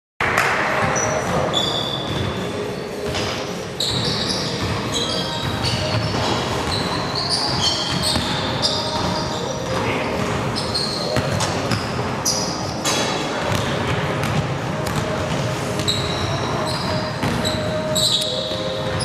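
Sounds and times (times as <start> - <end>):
sneakers squeaking on gym floor: 0.7 - 19.0
basketball bouncing: 7.5 - 10.4, 12.8 - 16.2.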